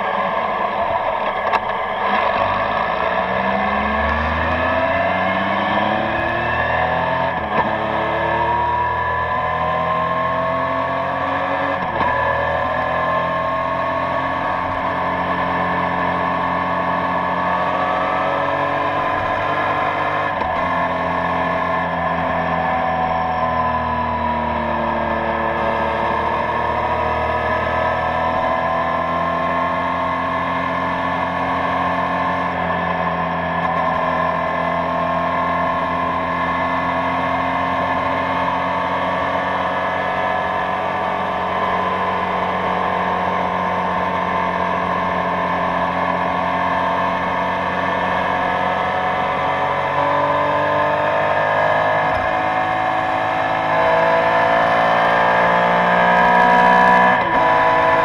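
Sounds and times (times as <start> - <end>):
motorcycle engine cruising: 0.0 - 58.0
wind and road noise: 0.0 - 58.0.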